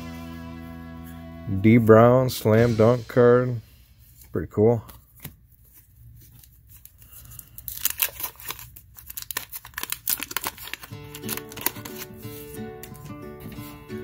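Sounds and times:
paper wrapper tearing and crinkling: 0:06.2 - 0:13.1.

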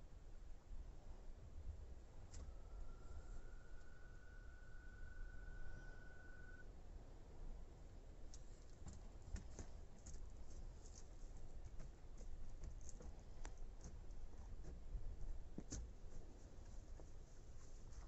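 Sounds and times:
horse hooves on stony ground: 0:08.8 - 0:18.0.

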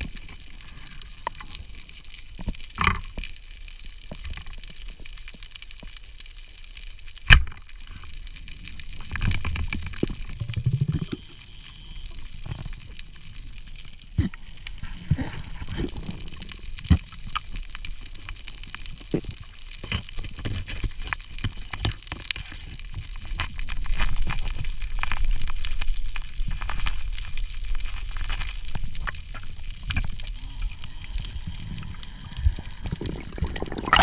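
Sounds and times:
underwater rushing water rumble: 0:29.2 - 0:34.0.

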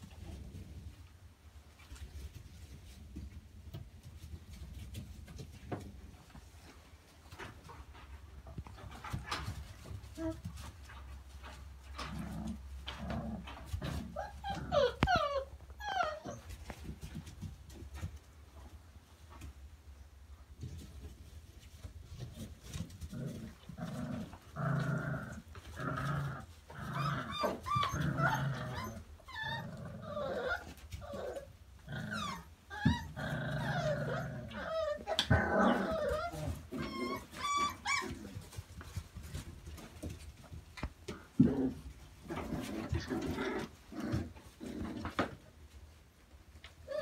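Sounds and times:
puppies growling: 0:08.8 - 0:16.4, 0:22.2 - 0:40.2, 0:41.1 - 0:45.4
puppies whining and yipping: 0:14.0 - 0:16.8, 0:26.8 - 0:38.6.

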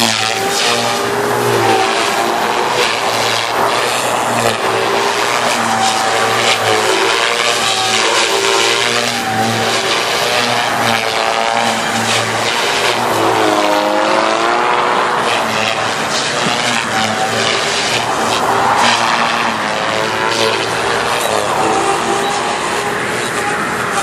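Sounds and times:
model helicopter motor whine: 0:00.0 - 0:24.0.

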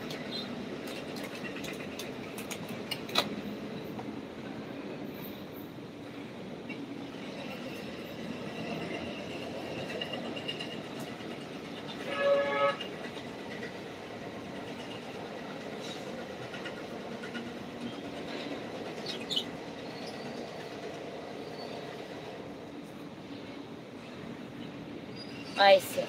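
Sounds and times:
vehicle horn: 0:12.0 - 0:12.9.

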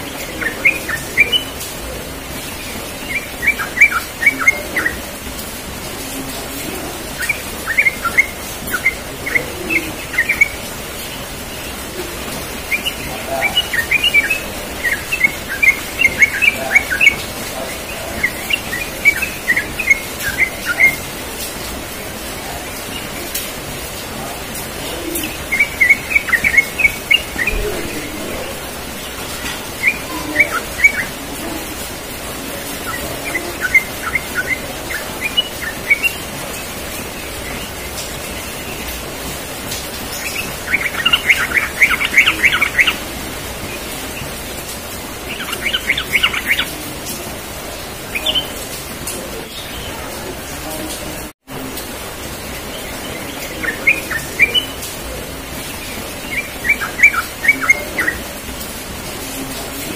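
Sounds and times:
bird chirping: 0:00.0 - 0:51.0, 0:51.7 - 0:59.5
background hiss: 0:00.0 - 0:59.9.

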